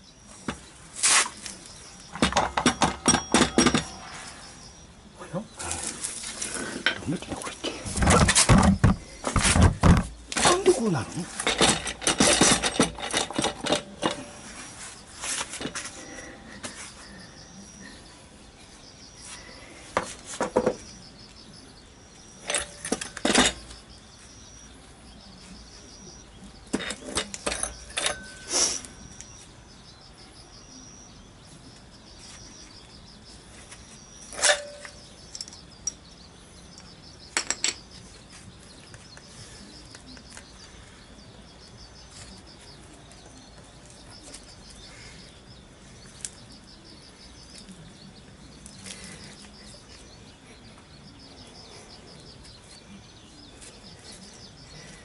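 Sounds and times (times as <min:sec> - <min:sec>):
metal parts clinking on concrete: 0:26.7 - 0:28.5, 0:34.3 - 0:36.1, 0:37.3 - 0:37.8.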